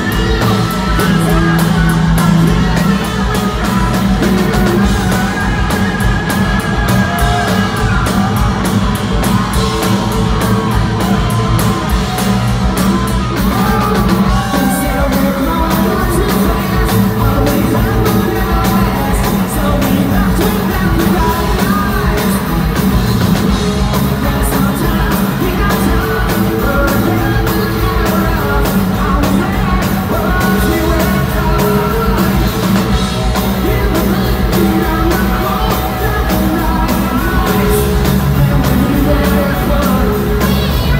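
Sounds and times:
loud hard rock band: 0.0 - 40.9
man singing lead: 0.0 - 40.9.

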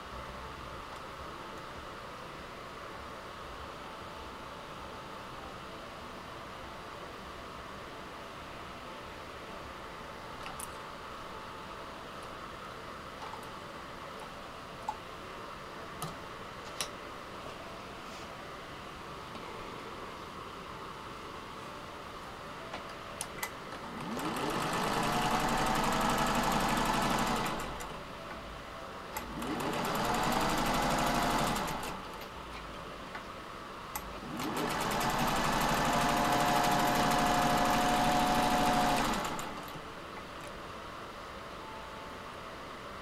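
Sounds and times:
sewing machine stitching: 23.8 - 28.0, 29.2 - 32.1, 34.1 - 39.8.

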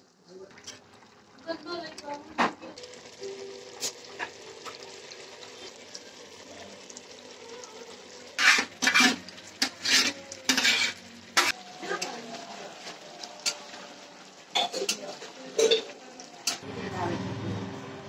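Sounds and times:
food sizzling in a pan: 0.0 - 18.0
spoon scraping a pan: 8.3 - 12.1.

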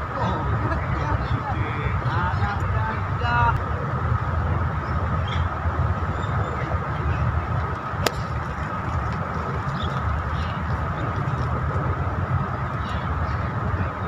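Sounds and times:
golf club striking ball: 8.0 - 8.6.

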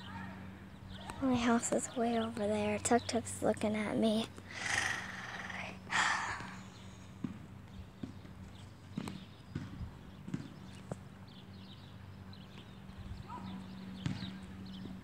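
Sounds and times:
steady low hum: 0.0 - 10.3.

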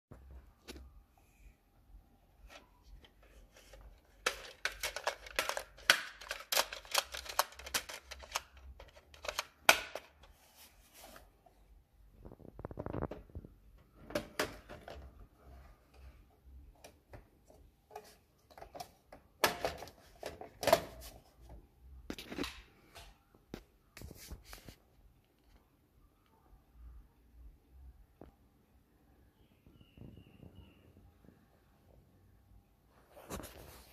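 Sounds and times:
plastic and metal clicking and rattling: 2.6 - 10.3.

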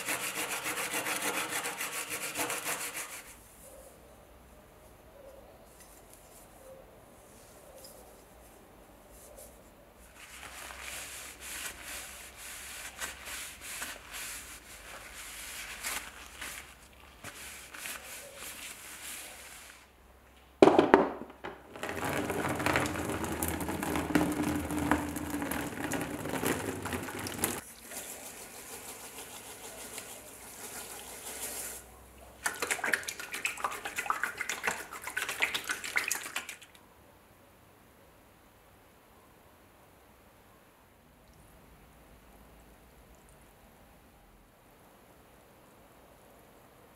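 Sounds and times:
gloved hands rustling: 9.3 - 19.9
water pouring into plastic tub: 21.7 - 31.8, 32.4 - 36.8.

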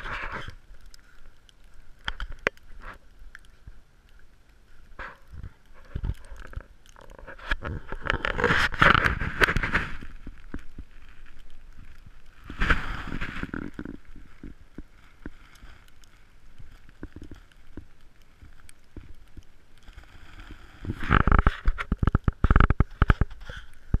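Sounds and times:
camera handling rumble and knocks: 5.0 - 10.4.

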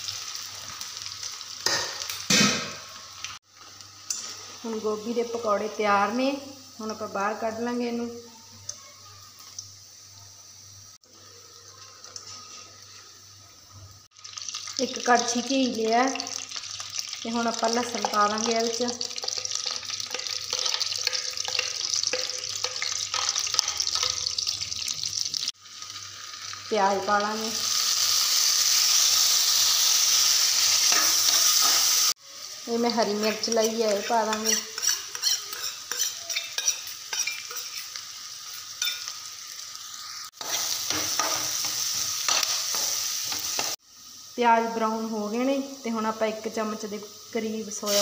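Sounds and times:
garlic sizzling in hot fat: 0.0 - 48.0
metal spatula scraping pan: 33.2 - 39.1.

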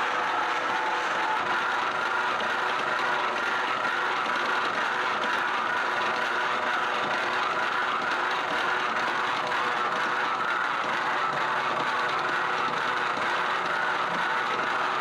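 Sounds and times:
noodle machine running: 0.0 - 15.0.

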